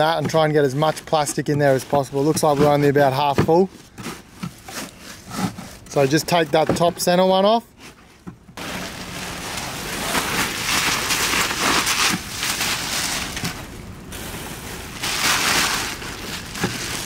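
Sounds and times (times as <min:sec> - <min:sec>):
plastic sheeting crinkling: 0:08.6 - 0:17.0.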